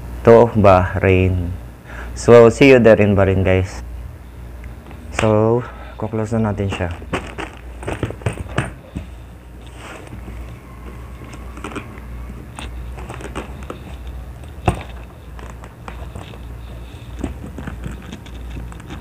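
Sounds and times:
steady low hum: 0.0s - 19.0s
bag rustling: 6.7s - 19.0s.

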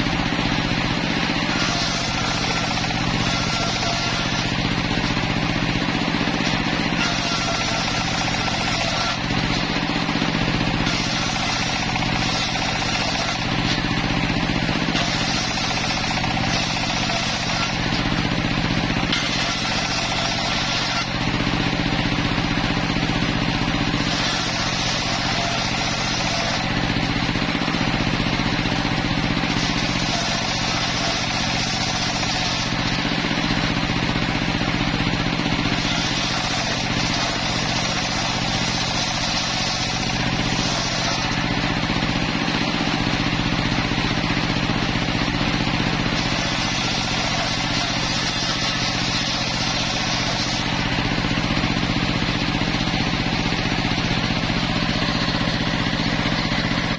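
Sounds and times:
circular saw motor hum: 0.0s - 56.9s
saw blade cutting wood hiss: 46.2s - 50.7s.

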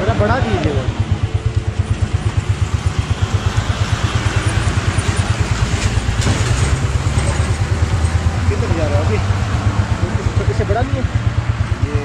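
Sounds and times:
motorcycle engine idling: 0.0s - 6.1s.

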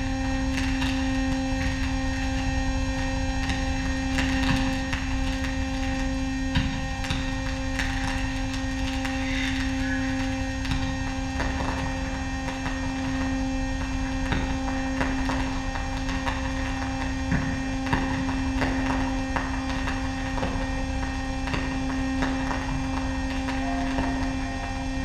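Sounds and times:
steady electronic hum tone: 0.0s - 25.0s.

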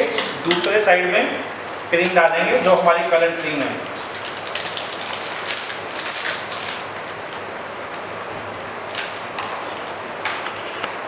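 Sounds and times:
plastic piping bag crinkling: 1.7s - 7.5s, 8.9s - 10.0s.

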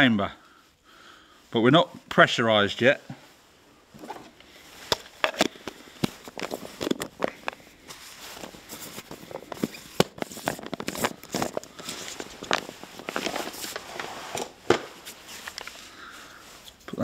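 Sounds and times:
balls rattling in plastic tub: 8.6s - 13.8s.

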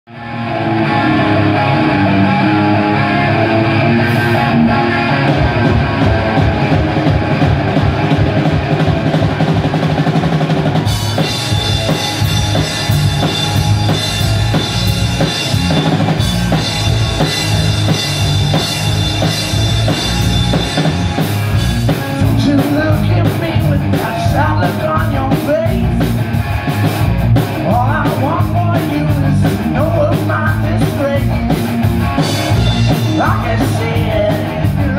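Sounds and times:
rock band playing: 0.1s - 34.9s
drum hits: 5.2s - 22.8s.

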